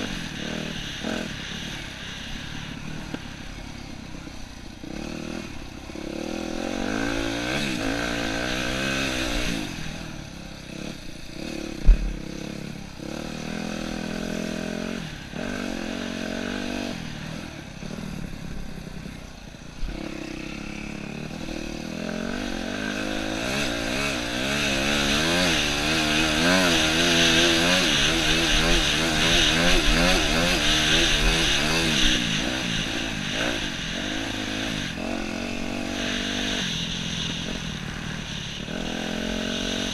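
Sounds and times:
dirt bike engine revving: 0:00.0 - 0:39.9
sharp knock: 0:11.8 - 0:12.3.

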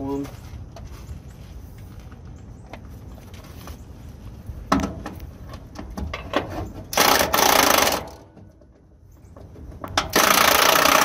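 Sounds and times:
impact wrench rattling: 0:06.1 - 0:08.4, 0:09.6 - 0:11.0.

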